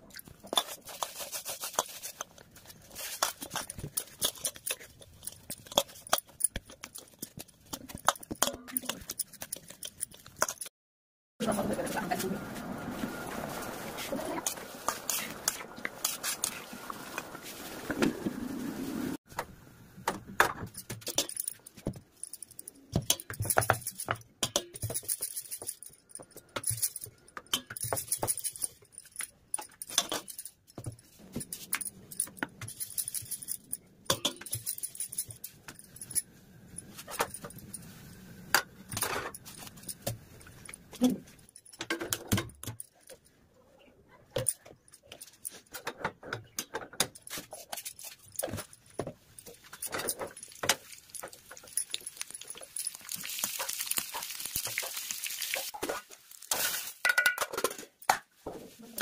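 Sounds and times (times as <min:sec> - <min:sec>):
steel utensils clinking on pans: 0:31.3 - 0:36.2, 0:46.5 - 0:58.0.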